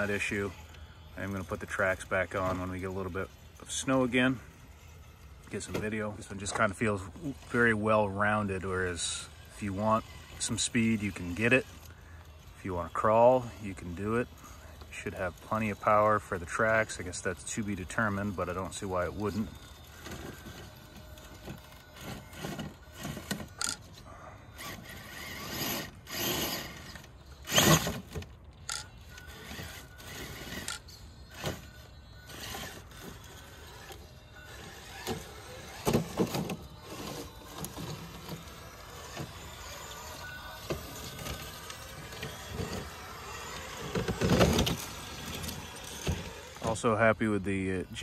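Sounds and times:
electric motor whining: 0.0 - 48.0
tyres grinding: 24.6 - 48.0.

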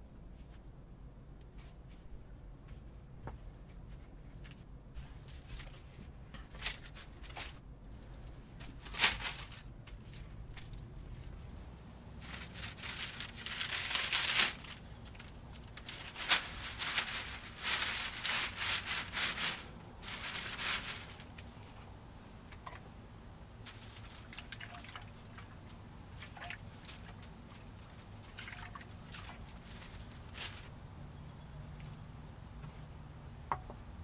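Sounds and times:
dry leaves rustling: 8.6 - 21.9, 23.6 - 30.8.

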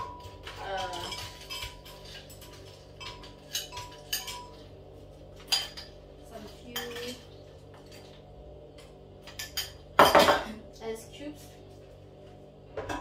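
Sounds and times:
metal spoon clinking on bowl: 0.0 - 4.7.

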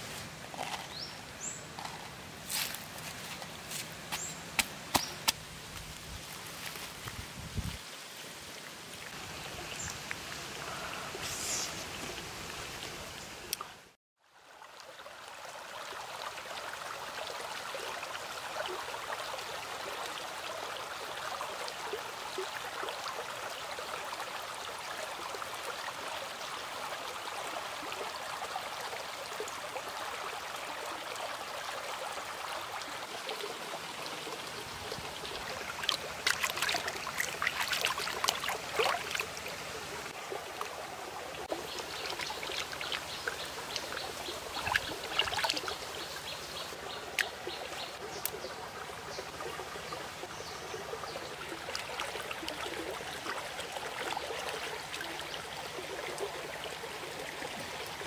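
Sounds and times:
stream babbling: 7.8 - 58.0
hands splashing in water: 35.9 - 39.2.

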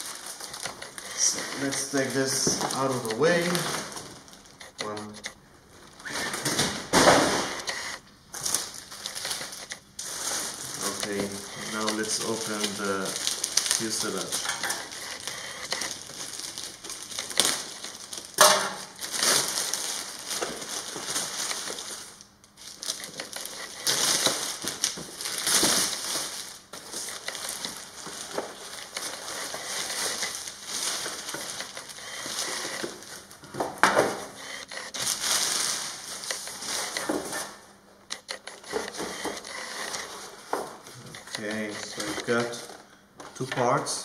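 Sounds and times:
plastic bag crinkling: 0.0 - 33.5, 34.1 - 37.6.

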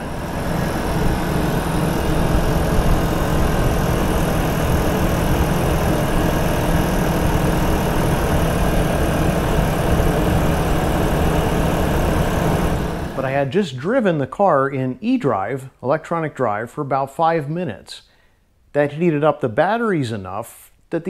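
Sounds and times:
air conditioning compressor running: 0.0 - 13.6.

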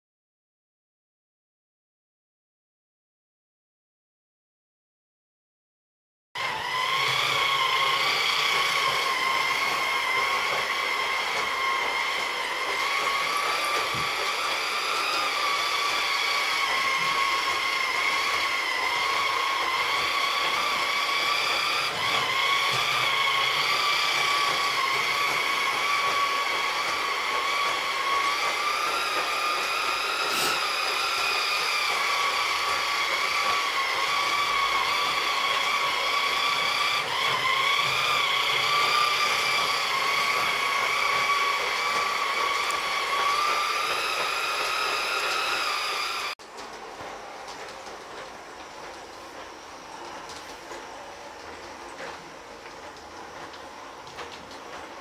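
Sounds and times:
model train motor whine: 6.4 - 46.4.

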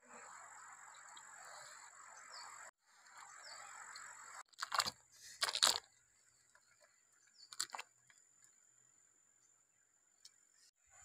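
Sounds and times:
crunching rustling basket handling: 4.5 - 5.9.

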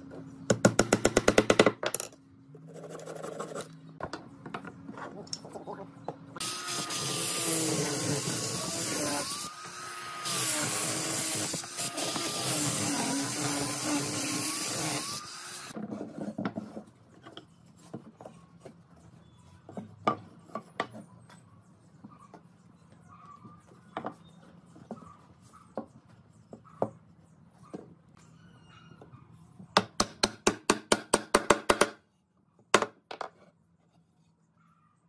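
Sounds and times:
angle grinder sanding wood: 6.4 - 15.8.

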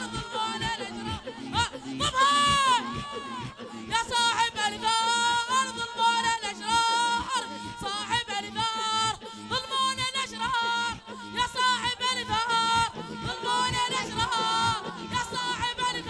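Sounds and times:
boys chanting into microphones: 0.0 - 16.0
rhythmic beat: 0.0 - 16.0.

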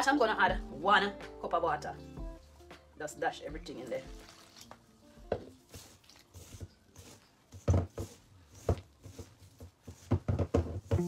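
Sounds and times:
hands squelching wet dough: 3.6 - 10.1.

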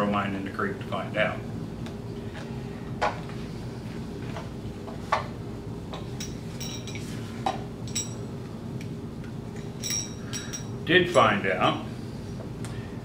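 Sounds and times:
metallic clinks: 6.2 - 7.1, 7.8 - 8.3, 9.6 - 11.3.

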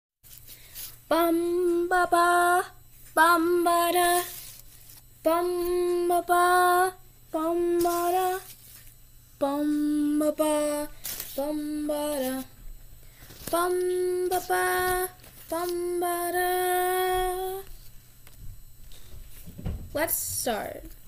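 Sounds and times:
girl singing wordless tune: 1.1 - 4.5, 5.2 - 8.5, 9.4 - 12.7, 13.4 - 17.8.

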